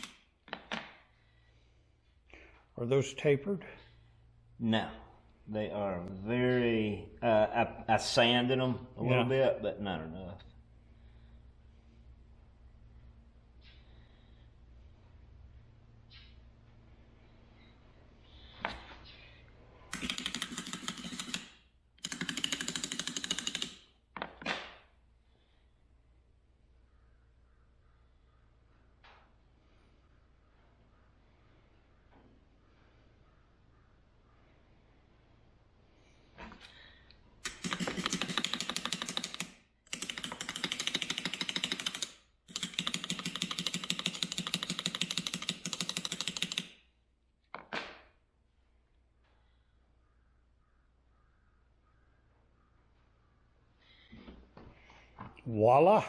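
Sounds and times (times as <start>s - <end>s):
rapid rattling clicks: 19.9s - 23.8s, 37.4s - 46.8s.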